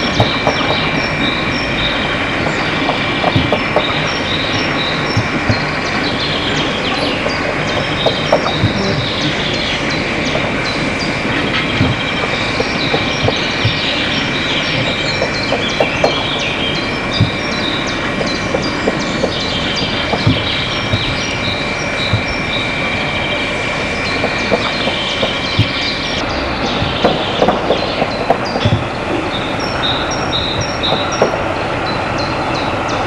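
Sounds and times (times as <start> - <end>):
clanks and knocks: 0.0 - 1.4, 2.4 - 16.4, 17.1 - 22.5, 24.1 - 31.4
birds chirping: 0.0 - 33.0
steam locomotive hissing: 0.0 - 33.0.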